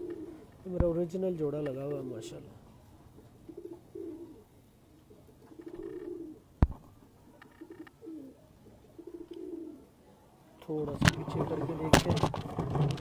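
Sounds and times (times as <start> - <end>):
pigeons cooing: 0.0 - 0.7, 2.2 - 10.2.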